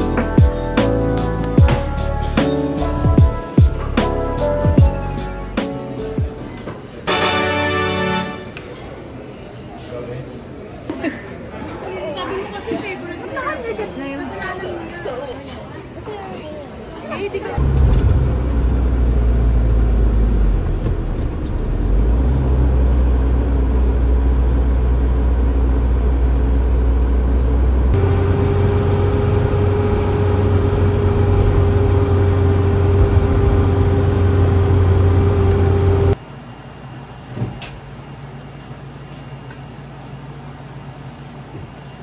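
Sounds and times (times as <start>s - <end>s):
vehicle engine rumble: 17.6s - 36.2s.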